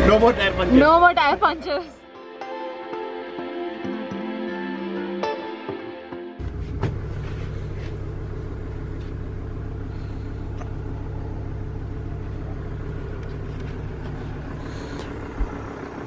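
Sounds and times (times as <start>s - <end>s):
vehicle engine rumble: 0.0s - 2.0s, 6.4s - 16.0s.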